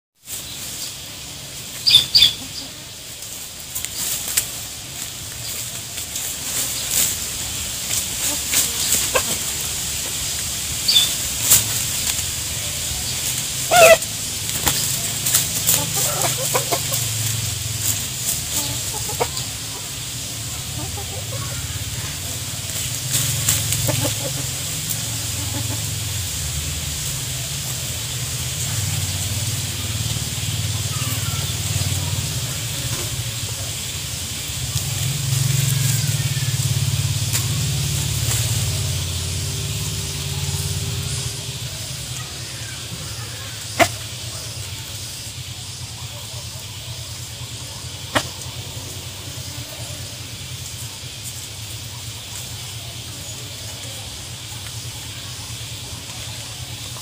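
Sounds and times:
chickens scratching in leaves: 0.2s - 57.0s
low rumble: 5.2s - 43.0s
chickens clucking softly: 7.8s - 26.4s, 27.2s - 57.0s.

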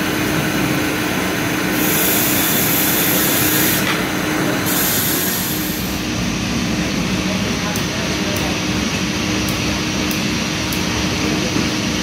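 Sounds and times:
grinding hiss: 1.6s - 6.1s.

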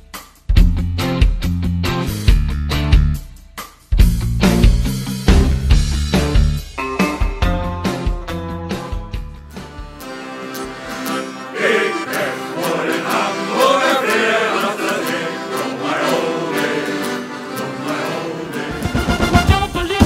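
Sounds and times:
accordion: 7.8s - 20.0s
men's choir singing: 11.2s - 20.0s
brass band with trumpet: 18.7s - 20.0s.

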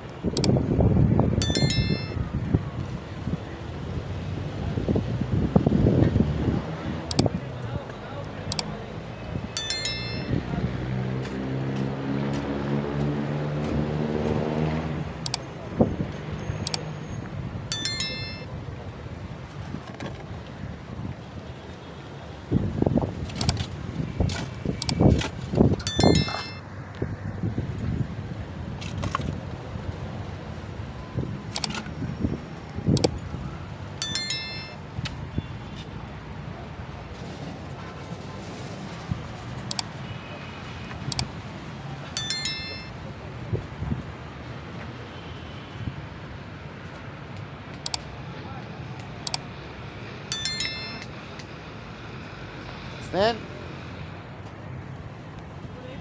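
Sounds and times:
sharp clicks: 0.3s - 0.6s, 7.1s - 7.3s, 8.5s - 8.7s, 15.2s - 15.5s, 16.6s - 16.8s, 39.7s - 39.9s
metallic clink ringing: 1.4s - 2.2s, 9.6s - 10.5s, 17.7s - 18.5s, 25.9s - 26.6s, 34.0s - 34.8s, 42.2s - 43.0s, 50.3s - 51.1s.

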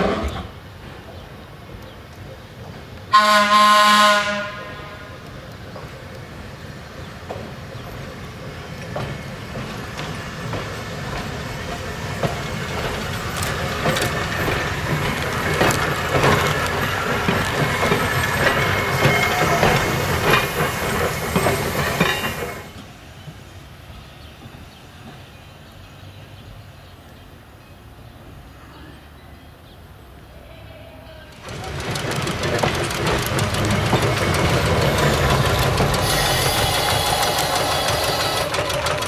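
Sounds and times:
trolley car passing: 0.0s - 39.0s
wheels clicking over rail joints: 5.1s - 23.4s, 31.2s - 39.0s.

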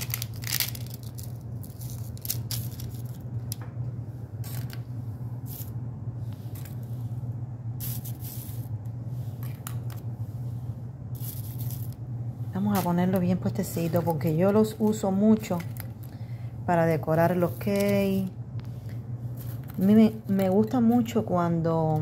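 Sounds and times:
parchment paper rustling: 0.0s - 3.7s, 7.8s - 16.4s, 17.1s - 22.0s
steady low hum: 0.0s - 22.0s.

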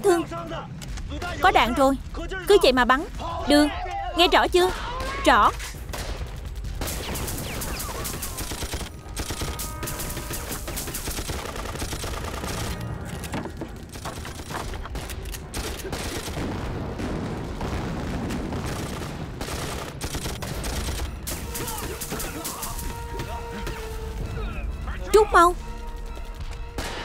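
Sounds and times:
heavy gunfire: 5.8s - 12.8s, 13.8s - 24.1s
machine-gun fire: 5.8s - 12.9s, 13.8s - 23.8s.

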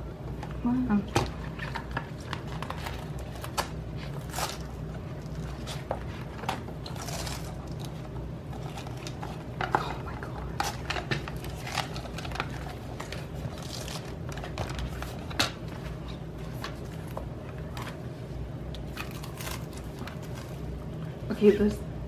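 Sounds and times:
low steady hum: 0.0s - 22.0s
plastic rustling: 1.3s - 18.1s, 18.8s - 20.8s.

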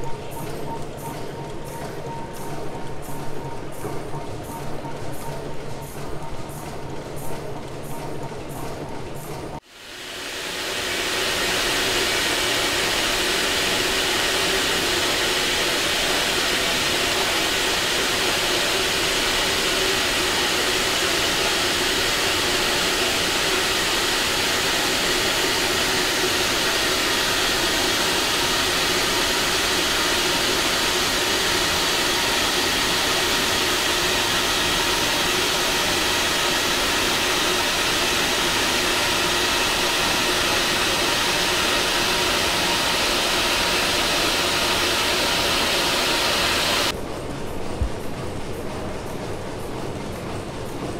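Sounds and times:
gas burners roaring: 9.5s - 47.1s.

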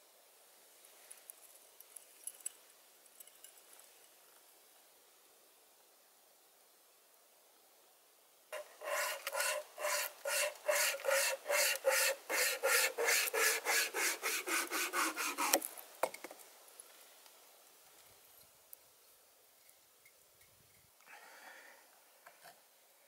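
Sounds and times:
wire saw rasping on wood: 8.6s - 15.7s.

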